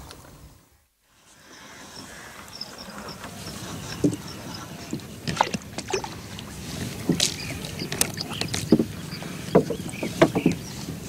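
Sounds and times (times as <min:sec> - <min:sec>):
water splashing: 0:02.0 - 0:11.0
wooden poles knocking on boat: 0:03.3 - 0:11.0.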